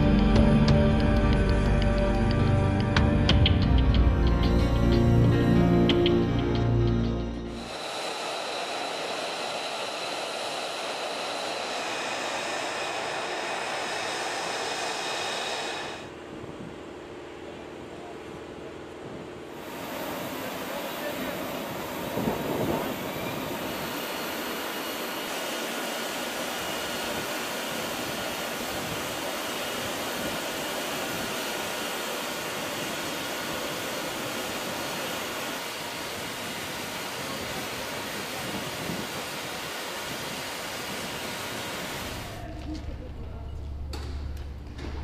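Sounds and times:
faint high whine: 6.9s - 44.2s
jet engine rushing: 7.4s - 17.3s, 19.5s - 42.5s.

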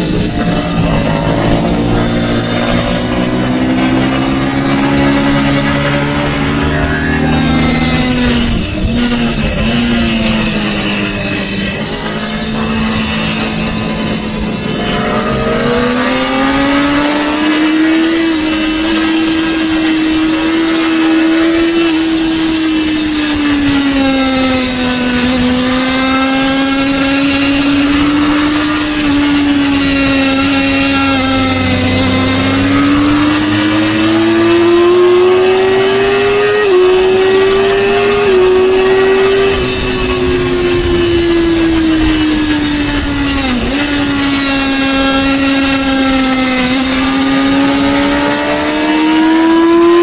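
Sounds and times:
motorcycle engine at racing speed: 0.0s - 50.0s.

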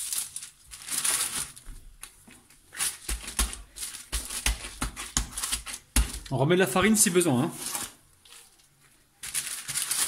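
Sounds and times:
baking paper rustling: 0.0s - 10.0s
hands pressing dough: 2.8s - 7.2s.

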